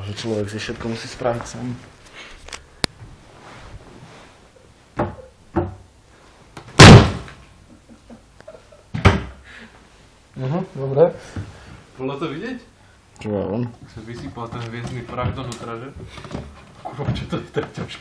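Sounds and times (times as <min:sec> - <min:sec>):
wooden drawer slamming shut: 0:06.8 - 0:07.3.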